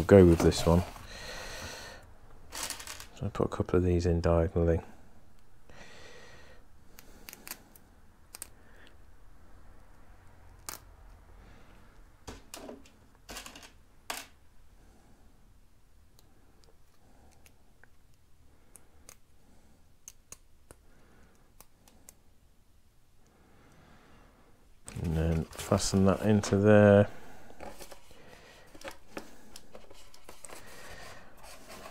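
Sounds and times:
small plastic parts clicking: 7.0 - 8.6, 16.1 - 19.3.

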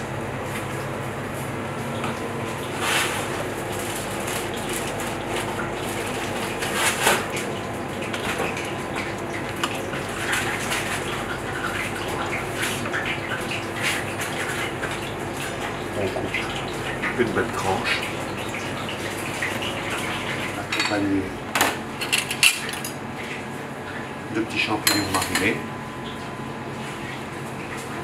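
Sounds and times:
kitchen equipment hum and rushing: 0.0 - 28.0.

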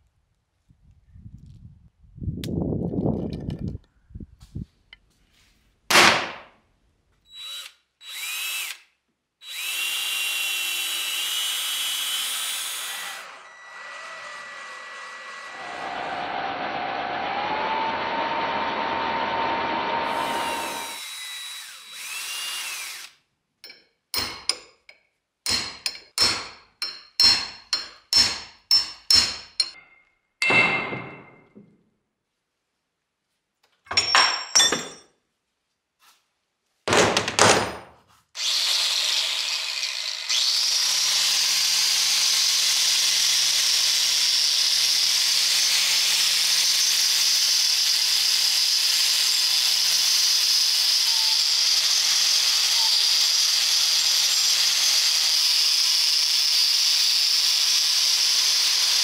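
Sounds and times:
angle grinder grinding metal: 9.5 - 23.1, 38.4 - 59.0
drill press spinning: 9.5 - 23.1, 38.4 - 44.8
sharp metallic knocks with ringing: 25.5 - 31.5.

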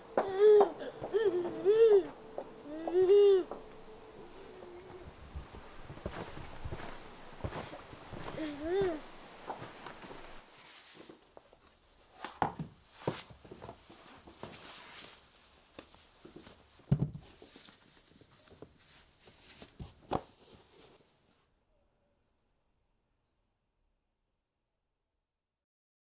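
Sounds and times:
shoes knocking and rustling: 0.0 - 4.2, 4.8 - 18.8.

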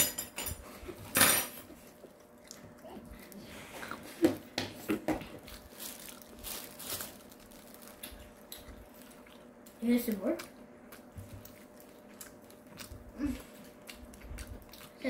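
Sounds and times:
soft mouth eating noises: 1.9 - 4.2, 7.9 - 9.8, 10.4 - 15.0
plastic gloves crinkling: 4.9 - 10.3.

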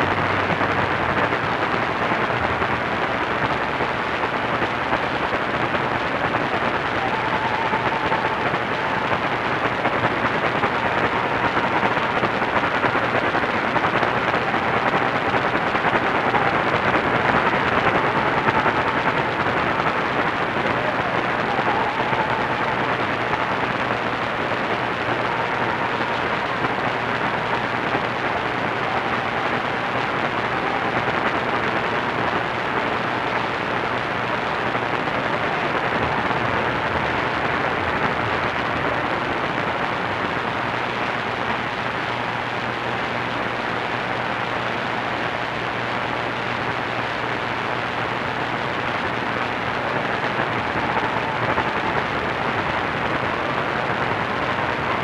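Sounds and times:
radio static hiss and crackle: 0.0 - 55.0.

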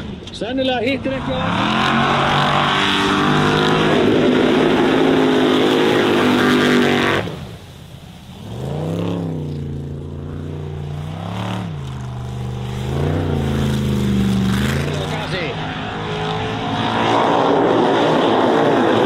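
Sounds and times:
race buggy engine at full throttle: 0.0 - 7.7, 8.3 - 19.0
distant engine revving: 0.9 - 19.0
tyres throwing water: 10.4 - 15.7.

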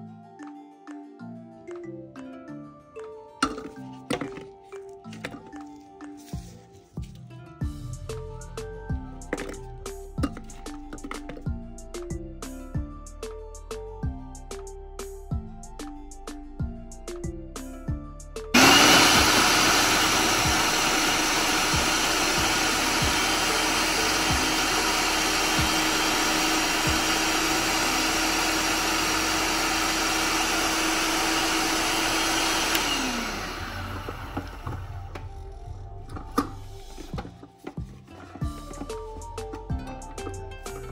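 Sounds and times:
food processor running: 3.4 - 4.5, 9.3 - 9.6, 10.2 - 11.4, 18.6 - 37.3.

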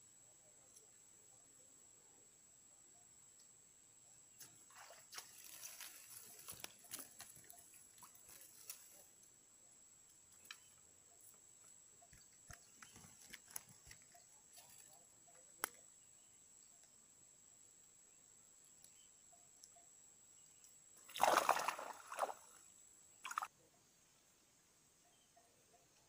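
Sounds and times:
faint clicks and rustles: 5.2 - 9.3, 10.2 - 15.8.

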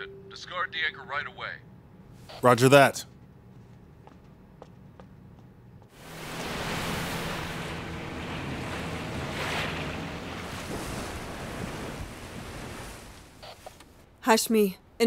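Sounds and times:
low steady hum: 0.0 - 15.0
wind: 4.0 - 15.0
sea waves rushing: 5.9 - 13.7.

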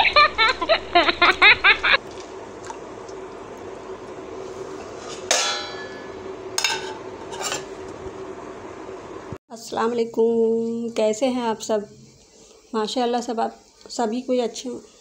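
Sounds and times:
faint hum: 0.0 - 15.0
metal dishes clanging: 5.1 - 7.7.

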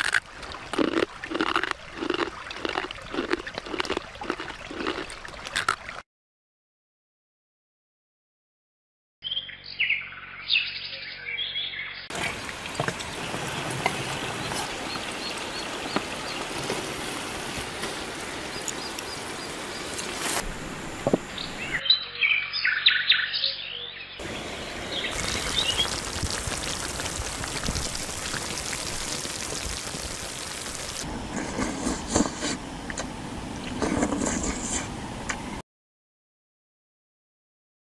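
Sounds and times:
birds chirping: 9.2 - 20.3, 21.0 - 31.0
stream water rushing: 12.1 - 21.8, 24.2 - 31.1.

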